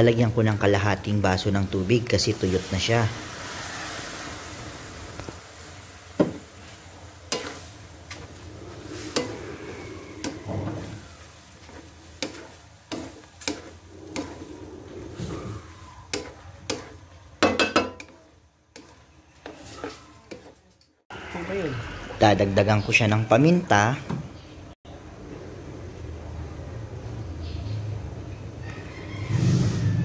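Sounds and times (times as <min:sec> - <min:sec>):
faint sizzle: 0:00.0 - 0:23.8
wooden spatula knocking on wok: 0:06.2 - 0:06.4.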